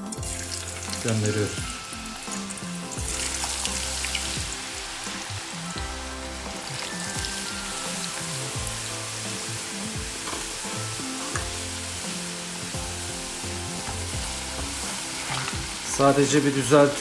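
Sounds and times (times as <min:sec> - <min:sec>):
potatoes deep-frying in oil: 0:00.0 - 0:17.0.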